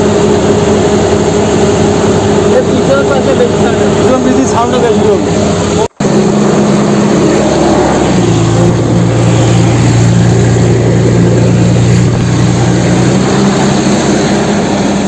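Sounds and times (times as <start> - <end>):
toy excavator engine drone: 5.8 - 15.0.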